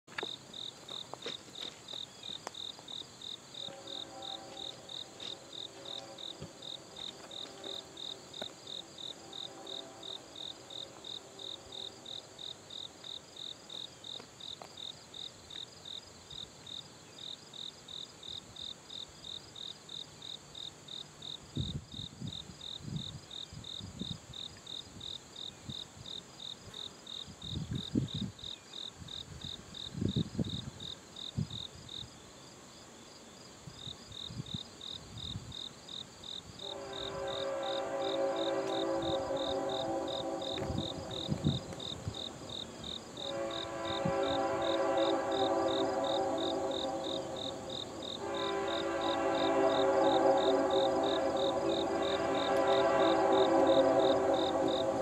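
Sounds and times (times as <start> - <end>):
insects chirping: 0.1 - 55.0
distant locomotive horn: 3.6 - 12.6, 36.6 - 55.0.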